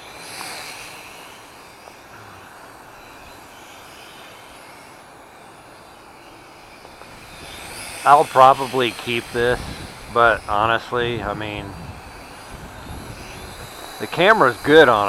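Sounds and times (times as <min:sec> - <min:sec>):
drone propellers whining: 0:00.0 - 0:15.0
wind buffeting microphone: 0:06.9 - 0:15.0.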